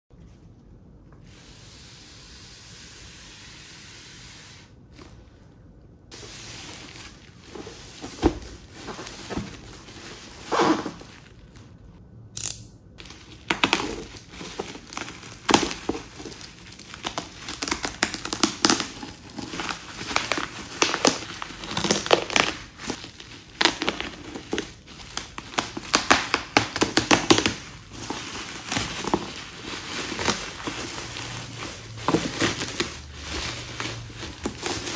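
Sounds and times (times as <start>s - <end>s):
plastic bag crinkling and tearing: 6.1s - 11.8s, 13.0s - 34.9s.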